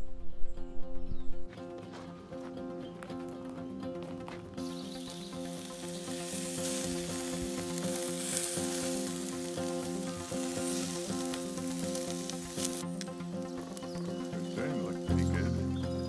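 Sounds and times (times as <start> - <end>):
background music: 0.0 - 16.0
hot dogs sizzling on a grill: 4.6 - 15.7.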